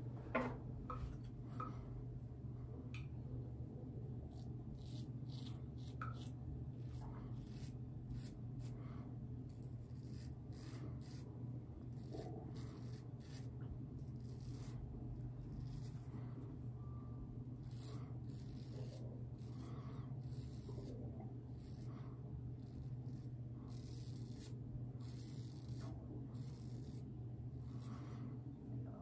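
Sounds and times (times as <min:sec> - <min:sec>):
razor scraping stubble: 0:04.2 - 0:16.5, 0:17.5 - 0:28.1.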